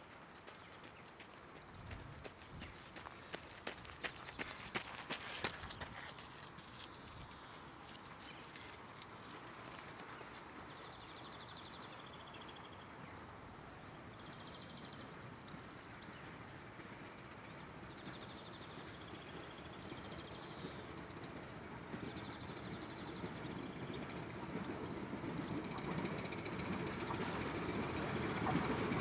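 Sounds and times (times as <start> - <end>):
distant steam train rumble: 7.3 - 29.0.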